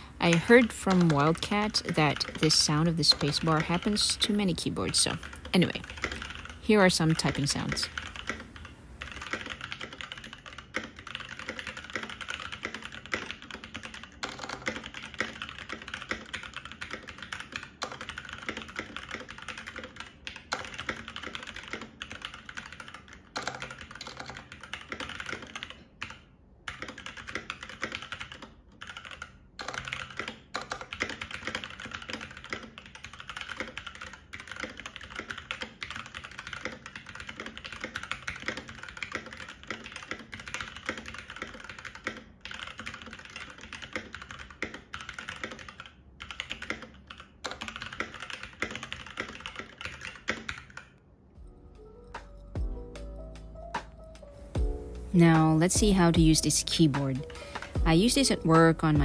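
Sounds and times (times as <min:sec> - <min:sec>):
fast mechanical keyboard typing: 0:00.0 - 0:51.0, 0:55.2 - 0:59.0.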